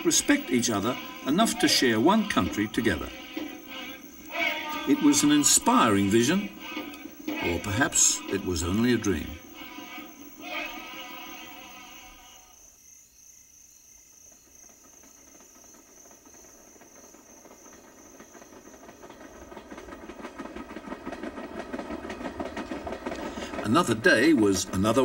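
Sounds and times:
train clattering on rails: 0.0s - 11.6s, 14.0s - 25.0s
music: 0.0s - 12.5s.

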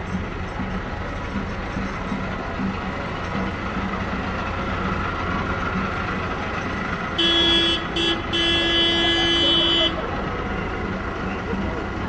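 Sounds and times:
tractor engines running: 0.0s - 12.0s
horn honking: 7.0s - 10.1s.

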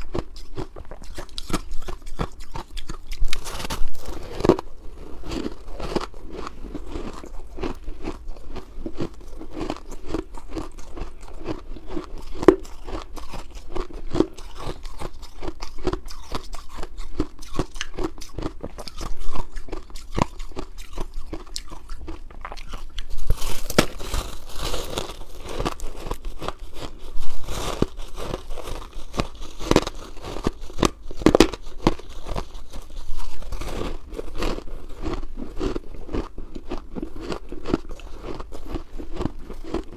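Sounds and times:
chewing crunchy ice: 0.0s - 39.9s.

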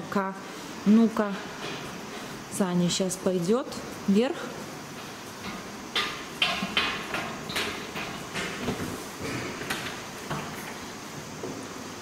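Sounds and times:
footsteps on metal staircase: 4.8s - 11.8s.

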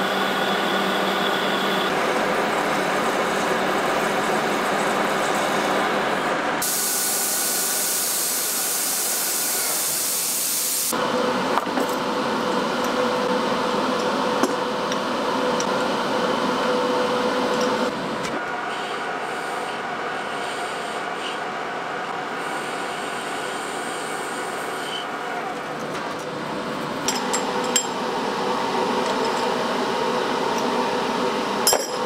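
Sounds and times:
lathe running with whine: 0.0s - 9.9s, 26.3s - 31.7s
loud steady hiss: 6.6s - 10.9s.

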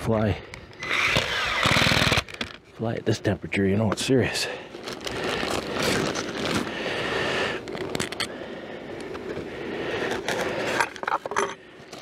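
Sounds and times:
plastic bag rustling: 4.6s - 8.2s.

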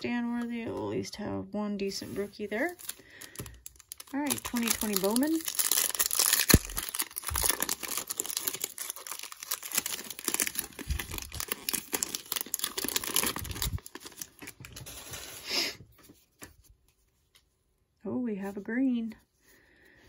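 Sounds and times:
foil wrapper tearing and crinkling: 2.5s - 15.6s.

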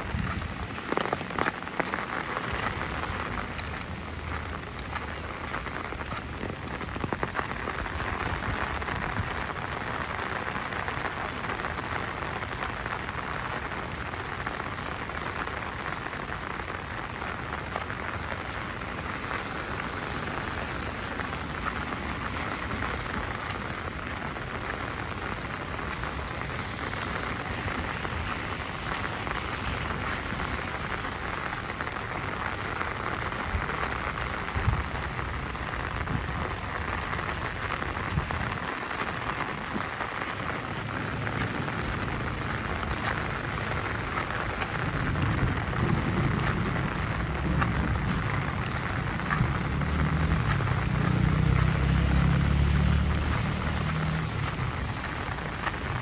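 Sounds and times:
rain falling: 0.0s - 56.0s.

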